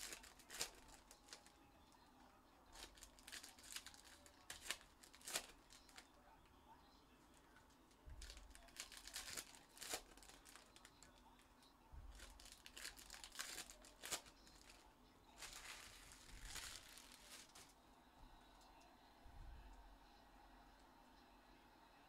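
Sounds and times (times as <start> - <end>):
plastic wrapping crinkling and tearing: 0.0 - 1.6, 2.7 - 6.1, 7.6 - 11.2, 12.0 - 17.8.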